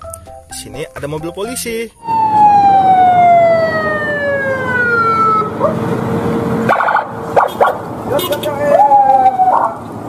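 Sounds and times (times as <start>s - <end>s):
road traffic rumble: 1.2s - 10.0s
police siren wailing: 2.0s - 9.9s
short sharp siren bursts: 6.7s - 9.7s.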